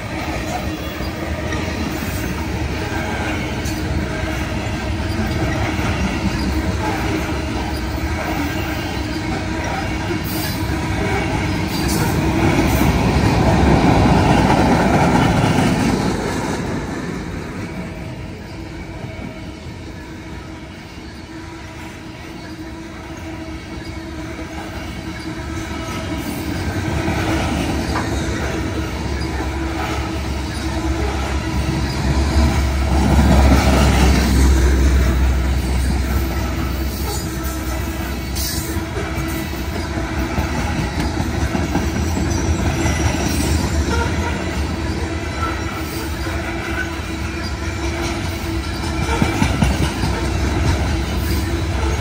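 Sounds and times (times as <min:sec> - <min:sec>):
train wheels rumbling and clacking: 0:00.0 - 0:52.0
wheel squeal: 0:20.7 - 0:52.0.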